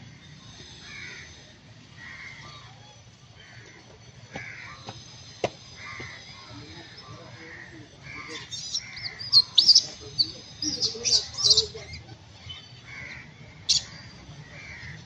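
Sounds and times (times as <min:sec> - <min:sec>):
crow cawing: 0:00.8 - 0:01.4, 0:02.0 - 0:02.8, 0:03.4 - 0:05.0, 0:05.8 - 0:11.7, 0:12.8 - 0:15.0.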